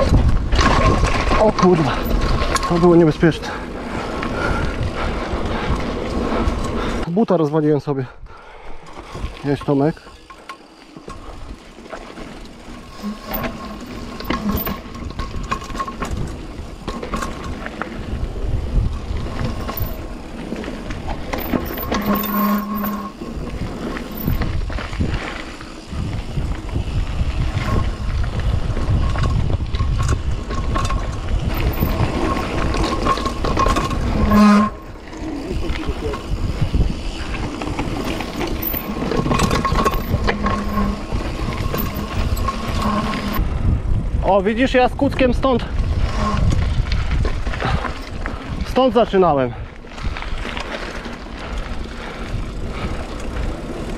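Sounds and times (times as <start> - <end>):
bike clattering over bumps: 0.0 - 7.0, 8.8 - 43.4
wind and tyres on dirt rumble: 0.0 - 53.9
loud squeal: 21.7 - 23.2, 40.2 - 43.4.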